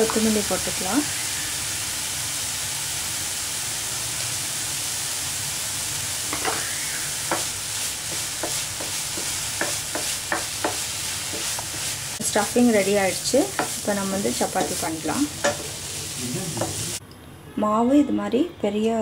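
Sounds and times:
food sizzling in a frying pan: 0:00.0 - 0:17.0
spatula scraping and tapping pan: 0:06.3 - 0:07.5, 0:08.1 - 0:12.0, 0:13.4 - 0:13.8, 0:14.5 - 0:15.8.

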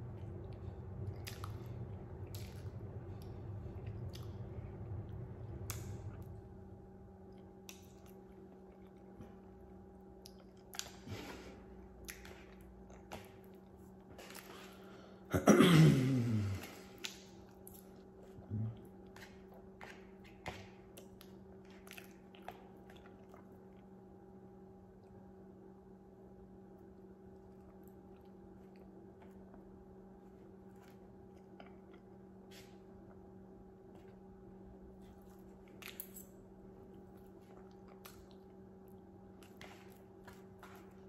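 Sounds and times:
steady low hum: 0:00.0 - 0:41.0
person chewing: 0:00.1 - 0:06.4, 0:07.2 - 0:15.0, 0:16.4 - 0:24.0, 0:27.3 - 0:41.0
short hummed voice: 0:15.3 - 0:16.9, 0:18.4 - 0:19.0.

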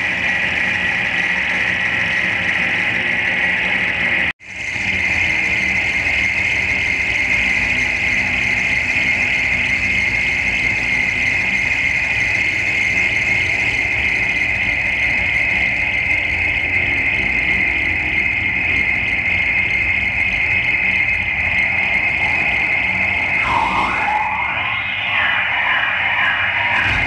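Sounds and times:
distorted electronic noise music: 0:13.0 - 0:27.0.

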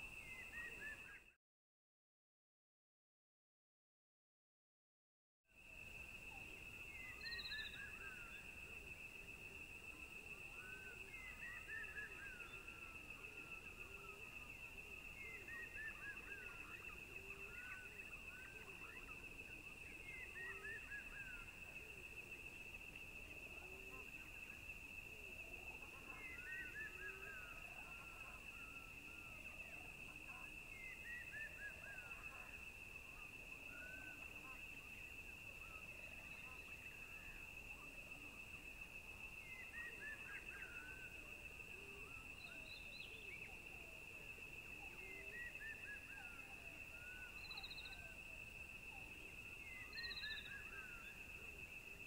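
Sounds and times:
high insect drone: 0:05.6 - 0:52.0
bird chirps: 0:06.9 - 0:08.4, 0:47.1 - 0:48.1, 0:49.6 - 0:51.2
small bird chirps: 0:07.0 - 0:08.4.

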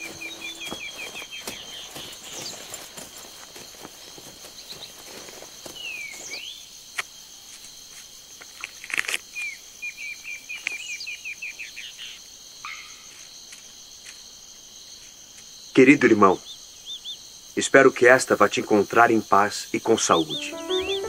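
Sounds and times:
bird calls: 0:00.0 - 0:06.6
high insect drone: 0:00.0 - 0:09.5.

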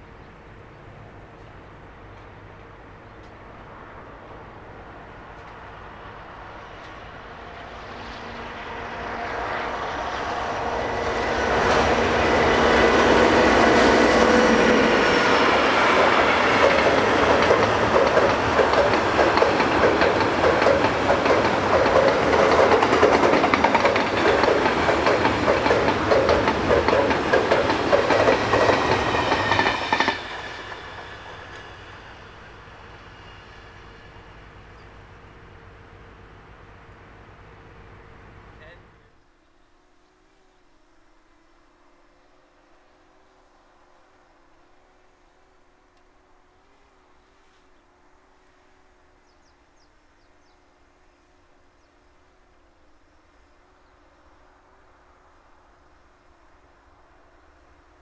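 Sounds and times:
diesel locomotive engine: 0:00.0 - 0:58.0
wagons clattering over rail joints: 0:16.0 - 0:30.9.

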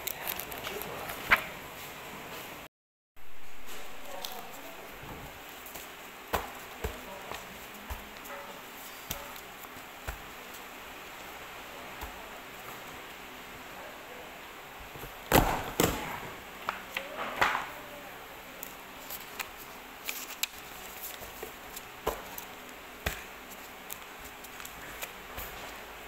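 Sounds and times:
paper rustling: 0:18.6 - 0:25.8.

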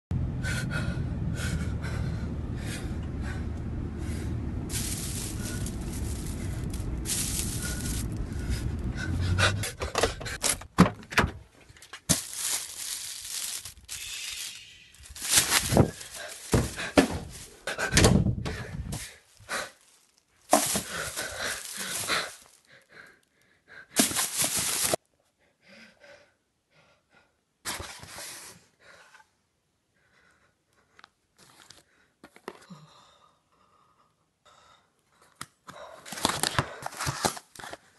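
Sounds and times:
car cabin rumble: 0:00.2 - 0:10.5
papers and foam rustling: 0:04.7 - 0:08.5, 0:11.6 - 0:17.7, 0:19.0 - 0:22.7, 0:24.0 - 0:25.0, 0:36.1 - 0:37.9
plastic bag crinkling: 0:04.7 - 0:08.5, 0:12.0 - 0:17.6, 0:19.3 - 0:22.7, 0:24.0 - 0:25.0.

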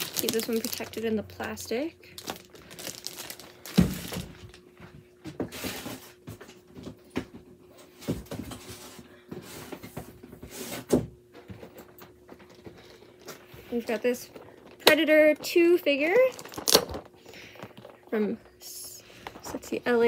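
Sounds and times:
packaging rustling: 0:00.0 - 0:04.6, 0:12.8 - 0:18.0
faint steady hum: 0:00.0 - 0:20.0.

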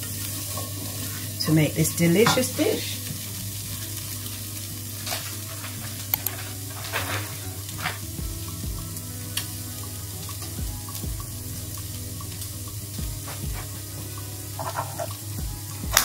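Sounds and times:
chickpeas sizzling in oil: 0:00.0 - 0:16.0
small clicks and pops: 0:05.1 - 0:08.7.

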